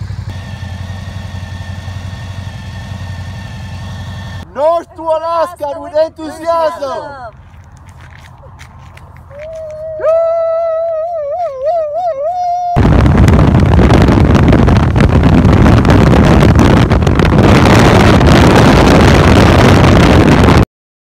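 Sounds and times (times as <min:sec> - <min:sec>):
wind rushing over microphone: 0:12.5 - 0:20.6.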